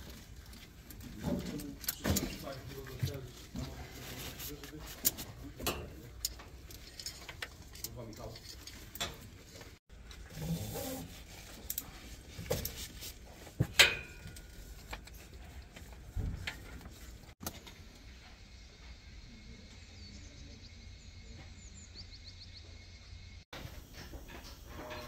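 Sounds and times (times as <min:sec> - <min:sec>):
faint bird chirps: 0:18.4 - 0:23.4.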